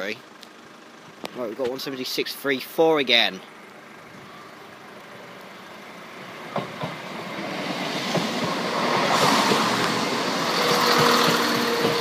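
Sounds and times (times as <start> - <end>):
diesel train passing at speed: 3.6 - 12.0.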